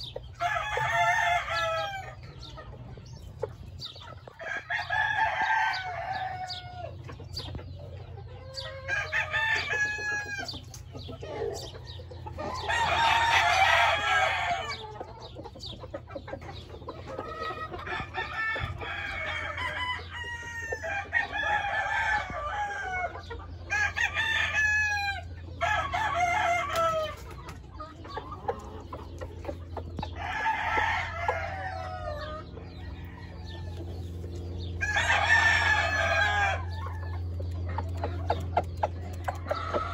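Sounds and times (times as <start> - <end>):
chickens clucking: 0.0 - 39.9
roosters crowing: 0.0 - 39.9.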